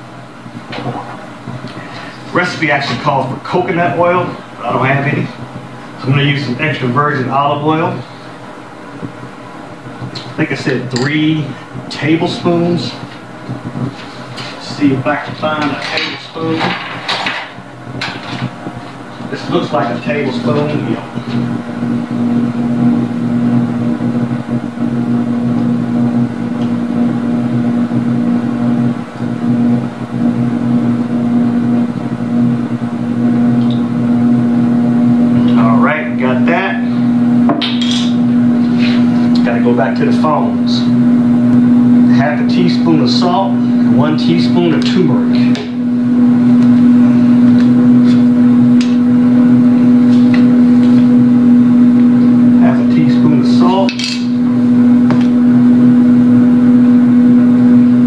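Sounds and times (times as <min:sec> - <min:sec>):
air fryer fan humming: 0:00.0 - 0:58.0.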